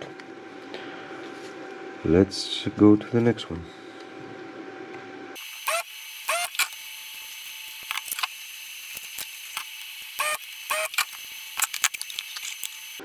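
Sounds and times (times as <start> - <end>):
desoldering pump sucking bursts: 5.4 - 13.0.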